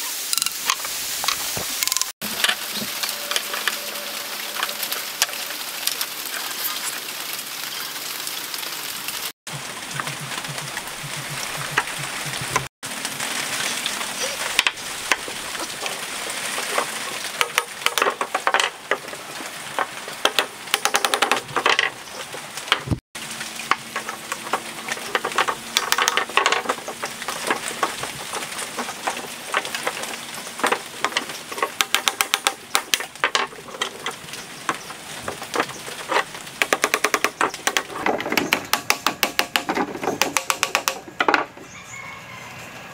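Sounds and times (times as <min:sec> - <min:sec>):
pipes and tools clicking: 0:00.4 - 0:02.6, 0:16.6 - 0:19.2, 0:19.8 - 0:22.0, 0:23.7 - 0:41.5
plastic scraping crackle: 0:23.7 - 0:38.7.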